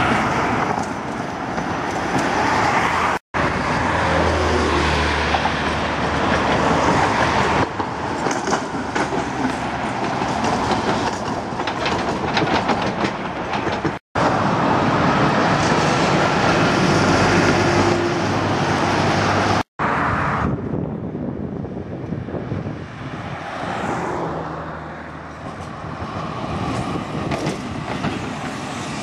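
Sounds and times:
tram wheels clacking over rail joints: 0:00.0 - 0:03.2, 0:03.8 - 0:19.5, 0:25.3 - 0:29.0
trams running: 0:00.0 - 0:19.6, 0:25.0 - 0:29.0
road traffic: 0:00.0 - 0:29.0.

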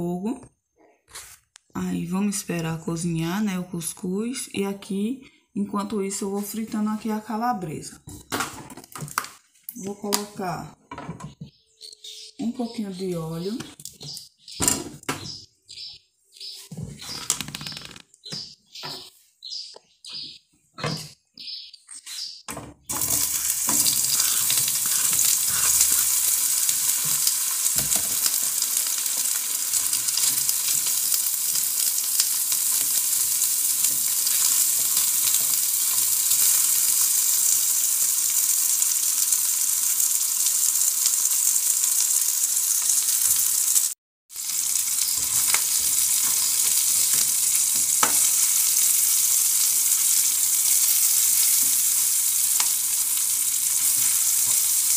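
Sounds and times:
sausage sizzling in hot oil: 0:11.5 - 0:14.6, 0:22.2 - 0:54.9
fork scraping a pan: 0:23.0 - 0:27.2.

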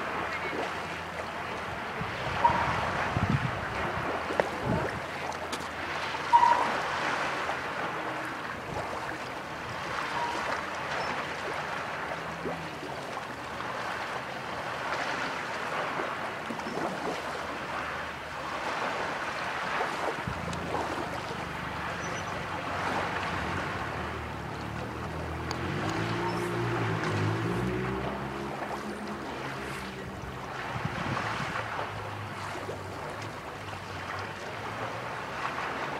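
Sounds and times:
waves lapping at shore: 0:00.0 - 0:35.9
wind: 0:00.0 - 0:35.9
gull calling: 0:02.4 - 0:02.8, 0:06.3 - 0:06.8.

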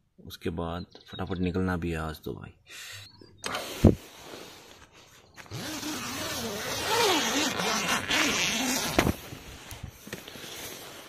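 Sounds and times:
tent zipper being pulled: 0:05.4 - 0:09.4
zipper click: 0:05.5 - 0:09.2.

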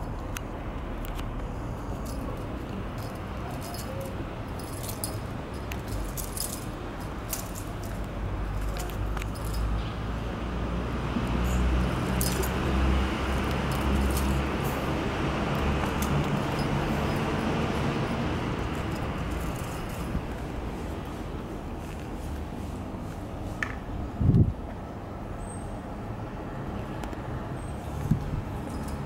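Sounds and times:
light metallic jingling clicks: 0:00.0 - 0:10.0, 0:11.2 - 0:20.5, 0:27.8 - 0:29.0
low traffic rumble: 0:00.0 - 0:29.0.

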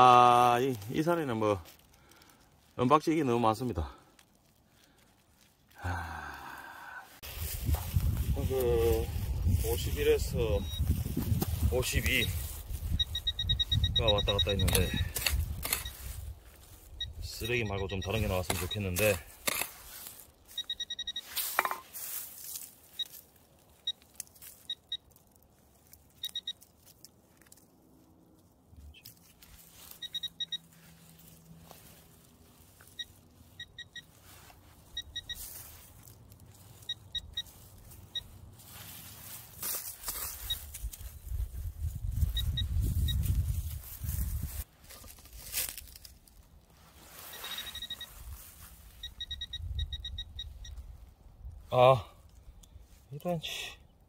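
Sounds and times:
pine needles scraping: 0:00.0 - 0:49.2
metal detector high beeps: 0:08.8 - 0:16.2, 0:17.0 - 0:19.8, 0:20.5 - 0:21.8, 0:24.6 - 0:25.1, 0:26.2 - 0:26.6, 0:29.9 - 0:30.8, 0:32.8 - 0:36.0, 0:36.7 - 0:38.4, 0:40.1 - 0:40.8, 0:42.1 - 0:43.6, 0:47.2 - 0:50.8
digging tool scraping dry soil: 0:14.0 - 0:23.3.

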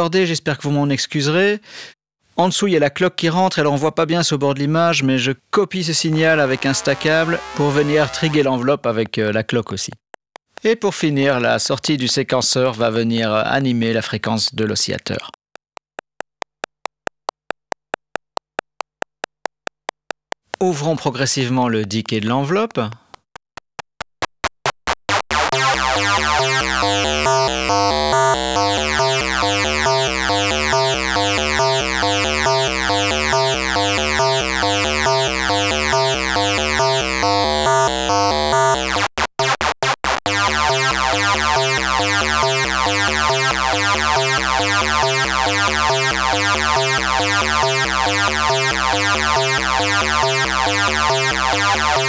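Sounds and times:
buzzy stepped synth sequence: 0:06.1 - 0:08.5, 0:24.4 - 0:52.0.

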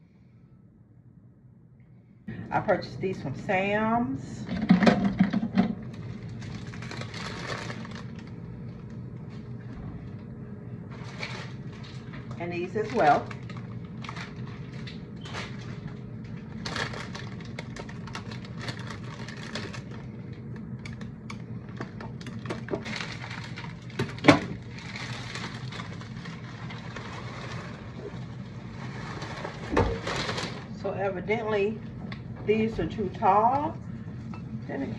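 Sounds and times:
plastic sleeves crinkling: 0:05.8 - 0:10.2, 0:10.9 - 0:30.8.

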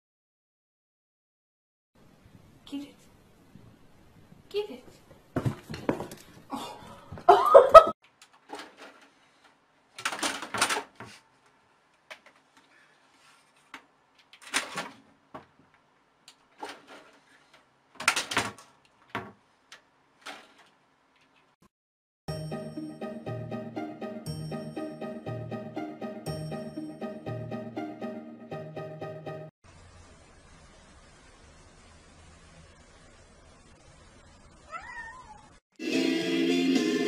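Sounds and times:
knocks and scuffles: 0:04.9 - 0:06.5, 0:18.4 - 0:19.4
cat clawing plastic computer case: 0:10.0 - 0:11.2.

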